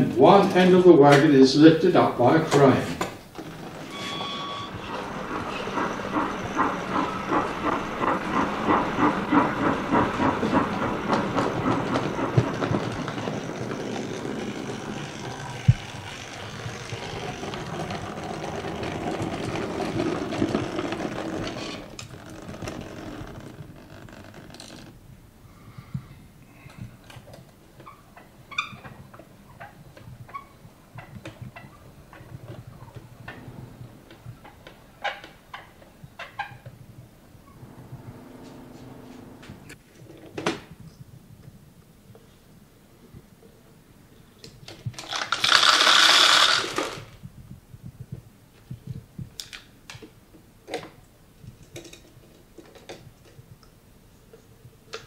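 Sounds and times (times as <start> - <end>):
model train clattering on track: 2.5 - 23.6, 44.7 - 47.1.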